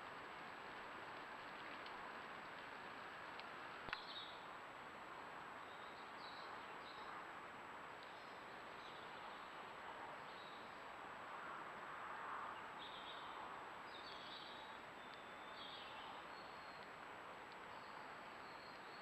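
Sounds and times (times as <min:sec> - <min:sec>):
faint high bird chirps: 0:13.9 - 0:16.9, 0:17.7 - 0:19.0.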